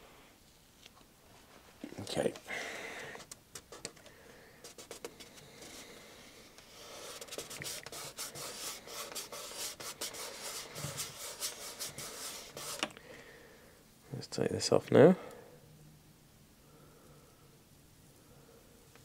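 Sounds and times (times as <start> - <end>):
fingers rubbing decal sheet: 6.7 - 12.9.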